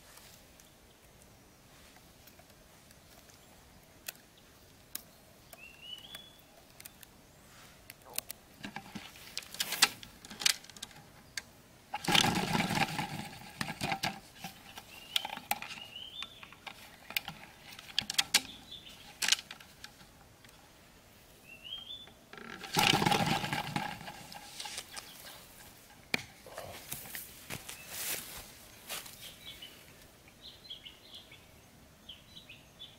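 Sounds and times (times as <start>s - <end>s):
bird chirping: 3.2s - 8.3s, 14.4s - 19.3s, 21.4s - 22.2s, 24.0s - 26.9s, 27.6s - 32.9s
rustling scrapes: 22.6s - 26.0s.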